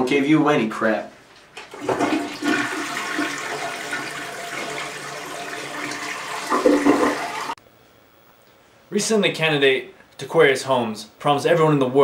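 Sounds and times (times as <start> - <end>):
toilet flushing: 1.7 - 7.6.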